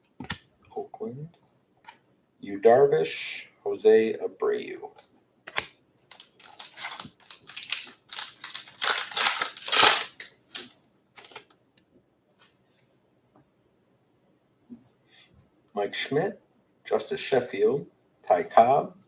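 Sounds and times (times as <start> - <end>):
foil wrapper tearing and crinkling: 6.1 - 11.5.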